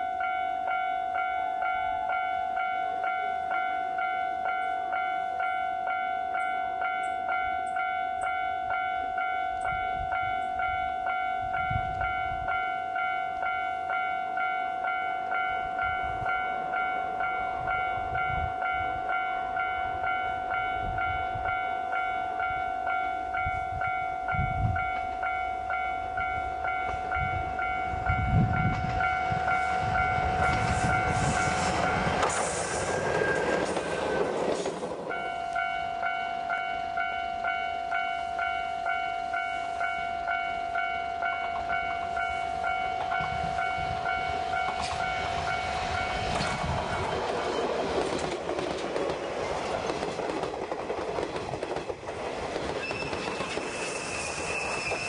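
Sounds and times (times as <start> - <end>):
railcar engine and wheels: 0.0 - 55.0
level crossing bell ringing: 35.1 - 46.3.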